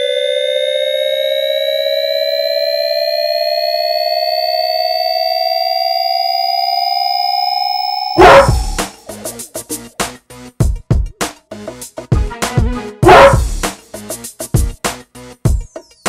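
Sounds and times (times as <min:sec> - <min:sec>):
rising electronic tones: 0:00.0 - 0:09.8.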